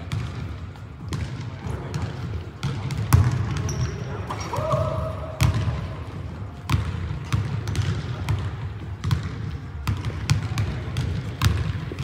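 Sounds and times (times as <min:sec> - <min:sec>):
basketball bouncing on wooden floor: 0:00.0 - 0:03.8, 0:06.7 - 0:12.0.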